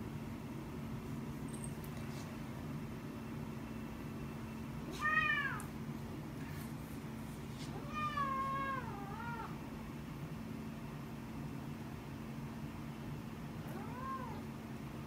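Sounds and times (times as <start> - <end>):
steady low hum: 0.0 - 15.0
cat meowing: 4.9 - 5.7, 7.7 - 9.6, 13.6 - 14.5.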